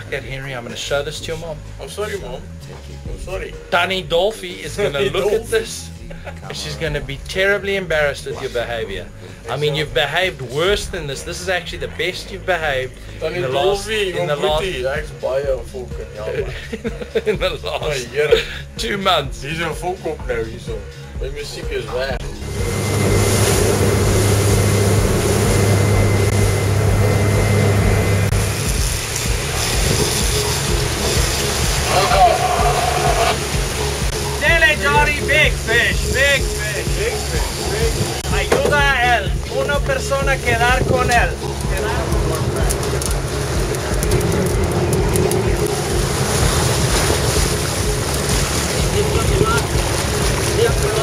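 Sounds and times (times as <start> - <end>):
boat engines droning: 0.0 - 18.8, 19.4 - 51.0
water churning: 21.9 - 51.0
wind rushing: 22.1 - 51.0
wind buffeting microphone: 22.2 - 36.0.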